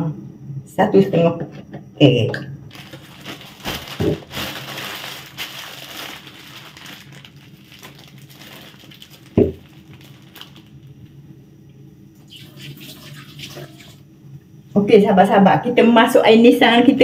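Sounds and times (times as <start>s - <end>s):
low steady hum: 0.0s - 17.0s
plastic bag crinkling: 2.7s - 11.2s.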